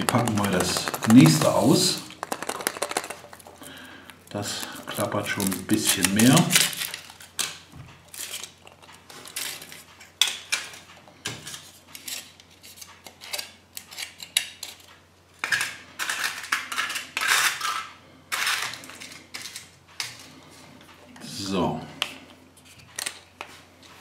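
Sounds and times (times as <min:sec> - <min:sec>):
plastic clicks and rattles: 0:00.0 - 0:03.5
foil wrapper crinkling: 0:00.0 - 0:09.9.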